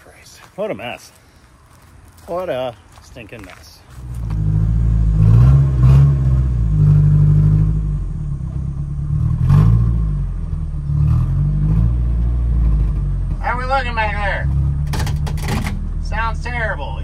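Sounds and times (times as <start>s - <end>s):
van engine revving under load: 3.9s - 16.6s.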